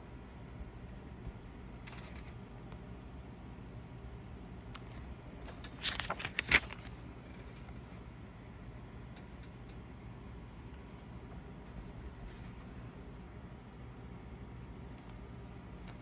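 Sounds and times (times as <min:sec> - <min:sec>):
paper page turning: 0:00.8 - 0:02.4, 0:04.7 - 0:08.1, 0:11.6 - 0:12.8, 0:15.7 - 0:16.0.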